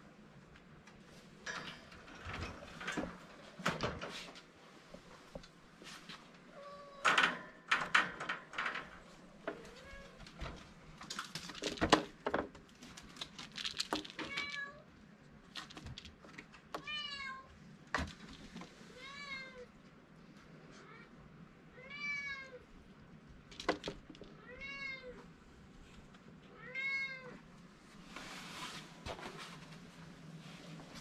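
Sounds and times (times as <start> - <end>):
wire cage knocking and rattling: 1.4 - 4.4, 7.0 - 12.6.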